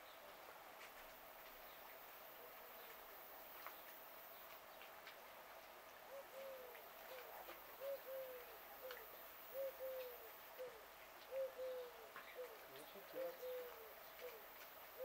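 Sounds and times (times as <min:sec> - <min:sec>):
faint clicks: 0:02.8 - 0:09.2, 0:09.8 - 0:15.0
dove cooing: 0:06.1 - 0:15.0.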